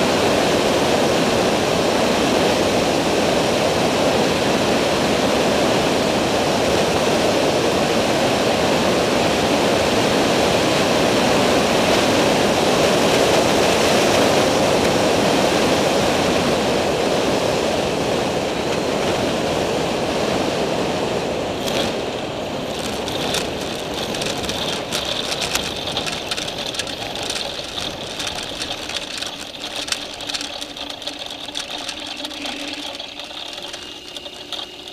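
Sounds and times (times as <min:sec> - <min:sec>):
microlight engine: 0:00.0 - 0:34.9
wheels rattling over grass: 0:10.8 - 0:16.8, 0:21.3 - 0:34.9.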